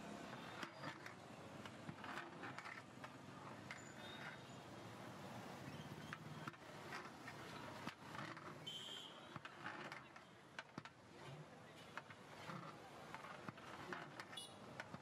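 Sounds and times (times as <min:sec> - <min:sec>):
brief high squeak: 0:03.8 - 0:04.6.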